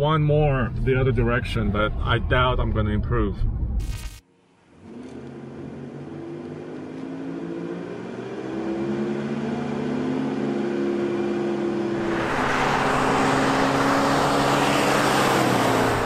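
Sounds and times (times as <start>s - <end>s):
truck engine revving in cab: 4.8s - 16.0s
truck driving by: 6.4s - 16.0s.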